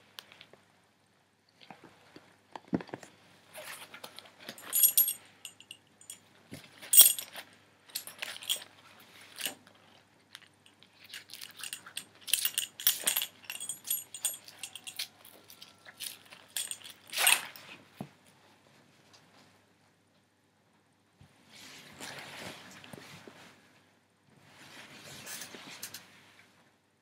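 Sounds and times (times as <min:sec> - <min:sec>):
metal buckles clinking: 0:04.5 - 0:06.2, 0:06.8 - 0:08.7, 0:11.0 - 0:17.6.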